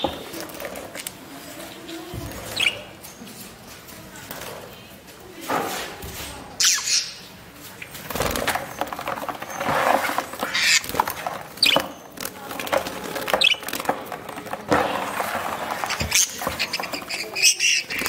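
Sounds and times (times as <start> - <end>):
budgerigars fluttering in plastic tub: 0.0 - 3.1, 6.6 - 18.0
knocks and rustling: 7.6 - 18.0.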